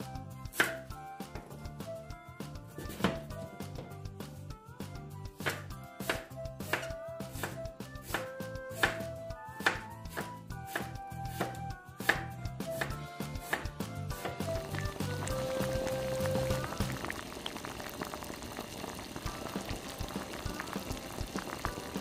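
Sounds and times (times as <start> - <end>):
background music: 0.0 - 22.0
knife chopping on wooden board: 5.4 - 9.0.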